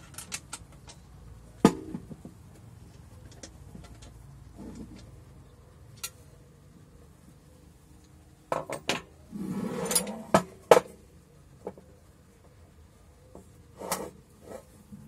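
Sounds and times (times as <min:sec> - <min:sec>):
steel parts clinking and scraping: 0:00.0 - 0:01.3, 0:05.9 - 0:06.4, 0:08.6 - 0:10.8.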